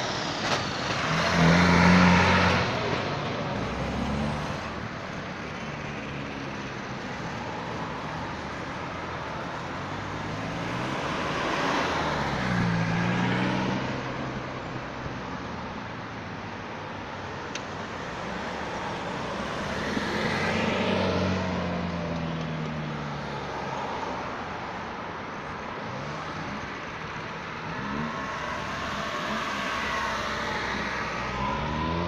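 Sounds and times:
engines pulling away: 0:00.0 - 0:04.8, 0:25.8 - 0:32.0
road traffic: 0:00.0 - 0:32.0.

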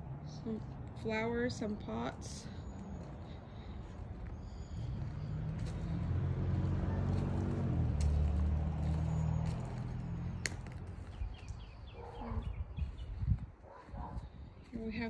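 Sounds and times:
passing vehicle engine hum: 0:00.0 - 0:14.9.

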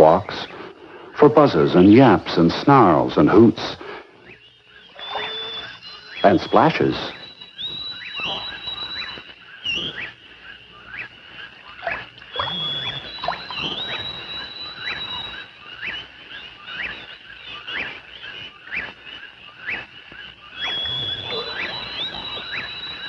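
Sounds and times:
squeaky animal chirps: 0:04.8 - 0:10.2, 0:11.8 - 0:15.5, 0:20.6 - 0:23.0.

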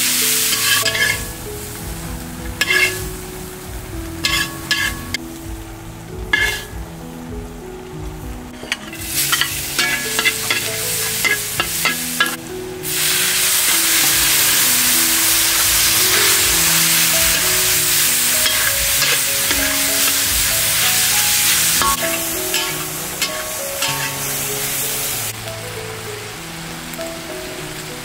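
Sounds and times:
food sizzling in hot oil: 0:00.0 - 0:07.1, 0:08.5 - 0:25.3
spatula scraping wok: 0:00.3 - 0:01.4, 0:02.6 - 0:03.0, 0:04.2 - 0:05.2, 0:06.3 - 0:06.7, 0:08.6 - 0:25.3.

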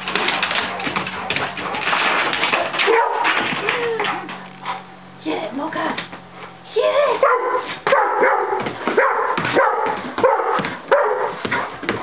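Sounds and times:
dog barking: 0:02.8 - 0:03.4, 0:07.2 - 0:11.9.

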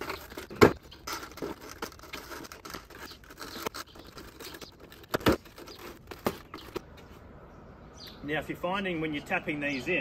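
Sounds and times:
plastic clicks and scraping: 0:00.0 - 0:07.1.

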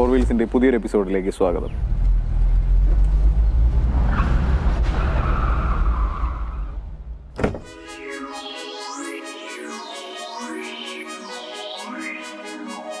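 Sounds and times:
thump: 0:07.3 - 0:07.7
electronic music: 0:07.6 - 0:13.0.

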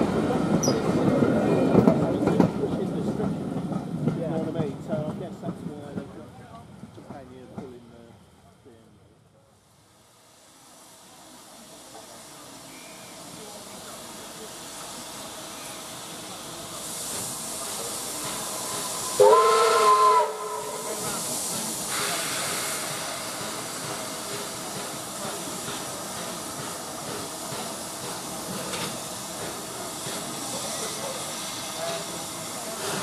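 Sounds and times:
steam hissing: 0:09.4 - 0:33.0
steam locomotive whistle: 0:18.6 - 0:21.2.

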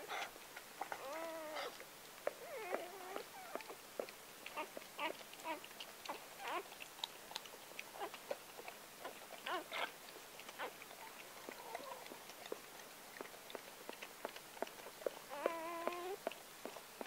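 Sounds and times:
dog licking wetly: 0:00.1 - 0:17.0
puppies squealing: 0:04.6 - 0:06.6, 0:15.3 - 0:16.2.

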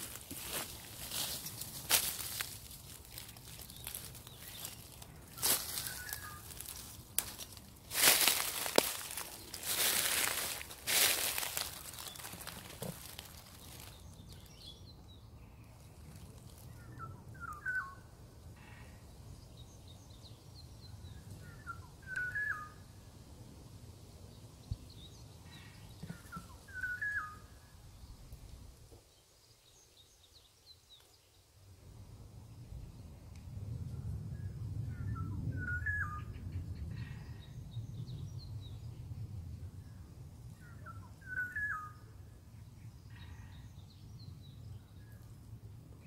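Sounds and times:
dry leaves crackling underfoot: 0:00.0 - 0:14.9, 0:15.6 - 0:17.9
songbird whistling phrases: 0:17.0 - 0:18.0, 0:21.5 - 0:22.8, 0:26.7 - 0:27.5, 0:40.8 - 0:42.0.

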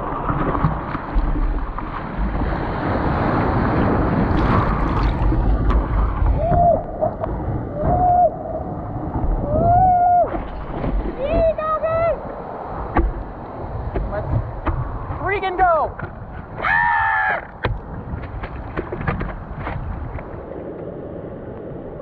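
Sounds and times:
whitewater rushing and splashing: 0:00.0 - 0:22.0
wind buffeting microphone: 0:00.0 - 0:22.0.

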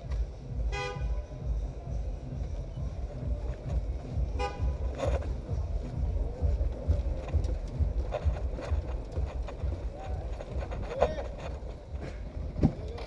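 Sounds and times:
motorcycle engine rumbling: 0:00.0 - 0:13.0
vehicle horn toot: 0:00.7 - 0:01.2, 0:04.3 - 0:04.8.

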